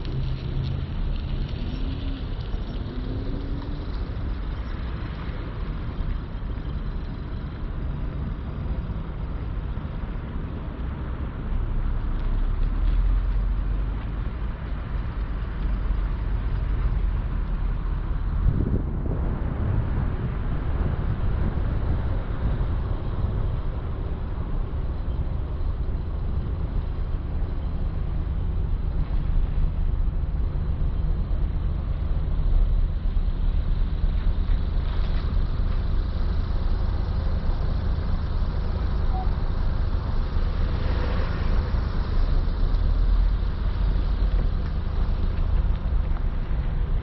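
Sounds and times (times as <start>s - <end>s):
car engine and road rumble: 0.0s - 47.0s
rush of noise: 15.0s - 47.0s.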